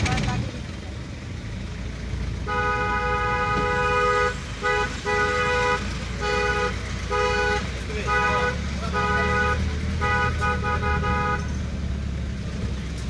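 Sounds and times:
low hum of moving vehicle: 0:00.0 - 0:13.0
vehicle horn honking: 0:02.4 - 0:11.5.

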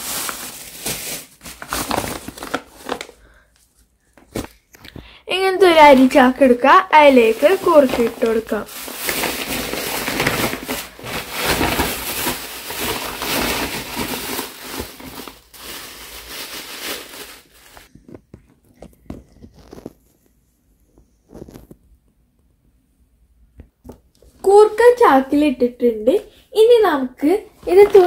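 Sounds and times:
plastic sack rustling: 0:00.0 - 0:03.4, 0:05.4 - 0:17.9, 0:19.2 - 0:20.1, 0:27.6 - 0:28.0.

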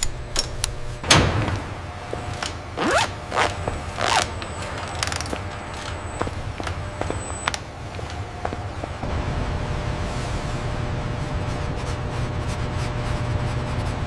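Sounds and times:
metal mechanisms clicking and clanking: 0:00.0 - 0:02.7, 0:04.0 - 0:06.8
steady low hum: 0:00.0 - 0:14.0.

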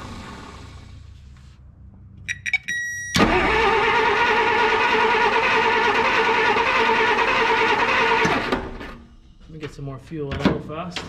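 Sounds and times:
starter motor cranking engine: 0:03.2 - 0:09.0.

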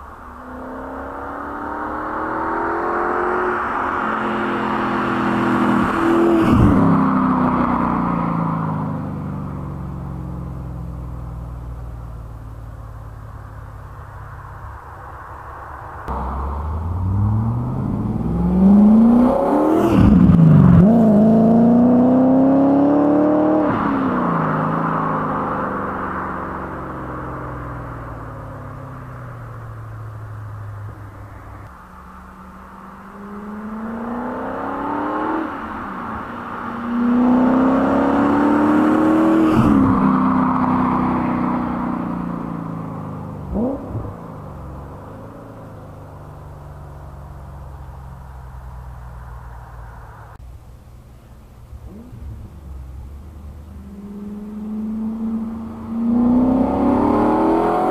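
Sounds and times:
car engine accelerating hard: 0:00.0 - 0:12.5, 0:15.9 - 0:50.4, 0:51.2 - 0:57.9.

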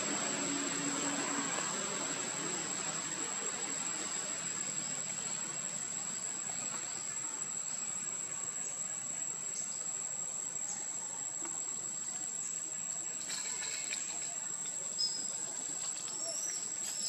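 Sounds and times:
insects calling high tone: 0:11.6 - 0:17.0.

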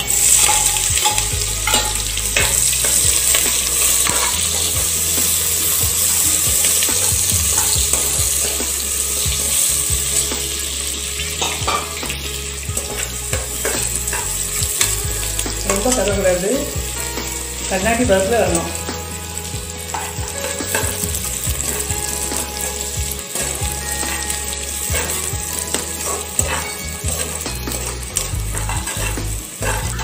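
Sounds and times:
onions sizzling in oil: 0:00.0 - 0:30.0
steel ladle clicking and scraping: 0:00.1 - 0:04.8, 0:12.8 - 0:15.0, 0:22.6 - 0:30.0.

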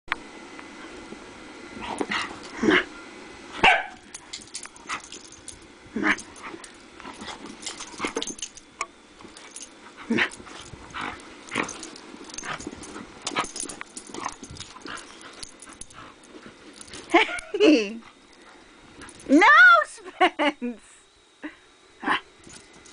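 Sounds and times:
dogs growling: 0:01.8 - 0:02.9, 0:04.4 - 0:08.6, 0:09.3 - 0:17.6
dogs barking: 0:03.6 - 0:04.0.

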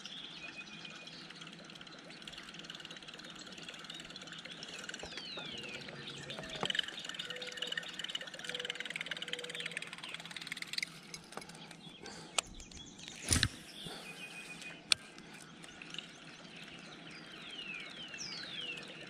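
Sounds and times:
bird chirping trill: 0:00.0 - 0:19.0
descending whistled bird notes: 0:02.8 - 0:10.3
sharp clicks: 0:06.2 - 0:14.0.

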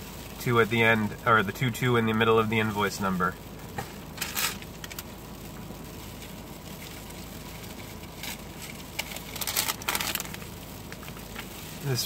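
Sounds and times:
steady low hum: 0:00.0 - 0:12.0
paper receipts rustling: 0:06.1 - 0:12.0.

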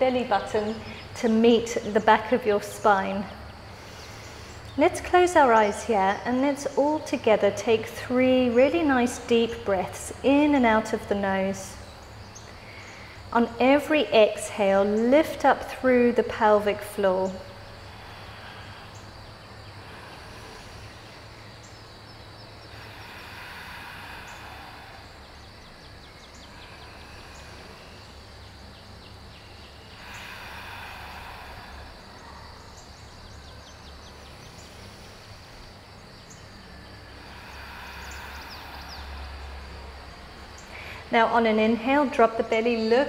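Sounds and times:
faint steady background hiss: 0:00.0 - 0:43.0
deep breaths through nose: 0:03.6 - 0:04.8, 0:17.5 - 0:41.1.

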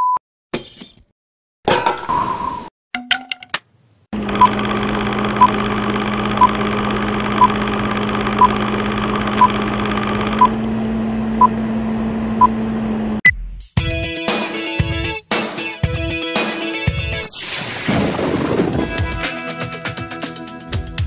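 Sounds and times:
film projector whirring: 0:04.2 - 0:11.0.

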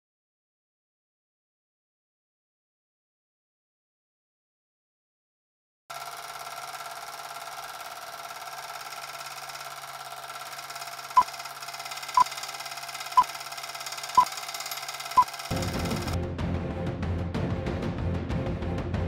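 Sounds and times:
film projector clattering: 0:05.9 - 0:16.2.

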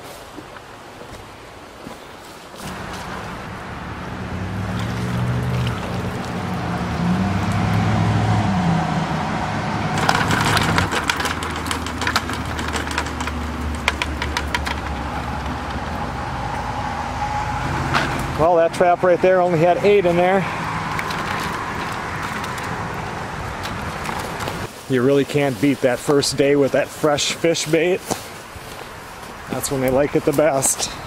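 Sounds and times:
road traffic engine drone: 0:02.6 - 0:24.8
crayfish and wire clattering: 0:10.0 - 0:16.2, 0:19.8 - 0:24.7.

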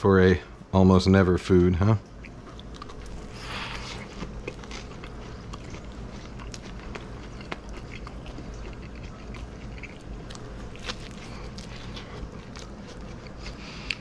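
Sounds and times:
person chewing: 0:02.2 - 0:14.0.

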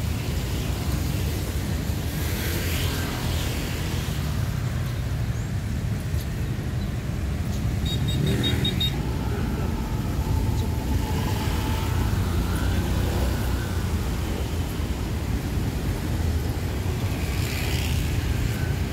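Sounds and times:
faint vehicle whine: 0:00.0 - 0:18.9
traffic rumble on wet street: 0:00.0 - 0:18.9
small vehicle engine passing: 0:08.1 - 0:18.9.

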